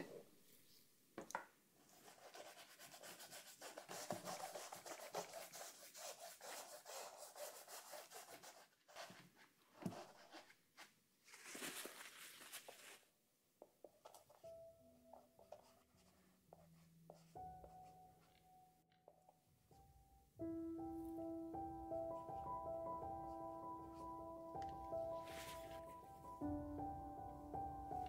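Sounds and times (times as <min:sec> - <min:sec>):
brush rubbing on canvas: 0:01.9 - 0:10.6, 0:25.2 - 0:26.0.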